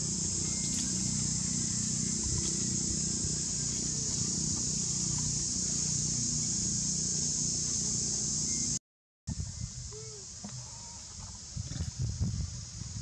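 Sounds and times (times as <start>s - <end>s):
high-pitched insect drone: 0.0s - 11.2s.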